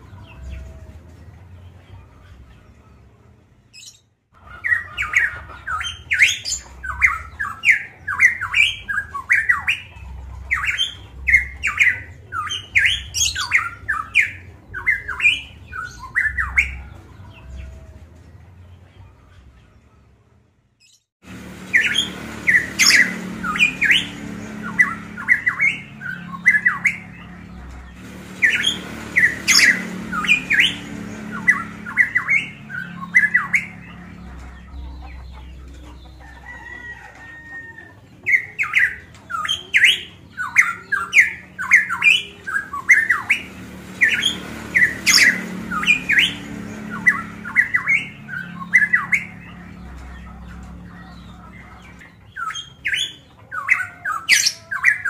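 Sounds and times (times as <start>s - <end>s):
bird calling sharp notes: 21.3s - 37.0s, 38.3s - 55.0s.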